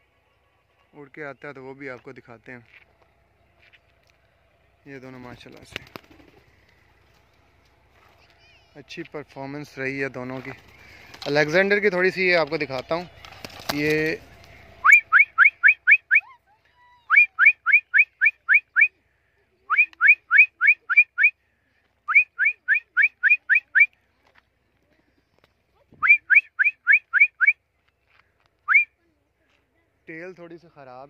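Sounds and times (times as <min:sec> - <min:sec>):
rising whistled notes: 0:14.8 - 0:16.3.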